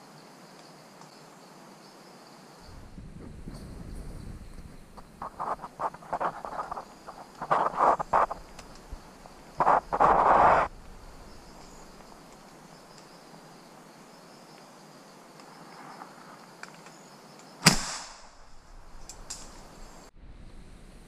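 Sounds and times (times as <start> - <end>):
faint high insect hum: 0.0 - 21.0
gunshot: 17.6 - 18.5.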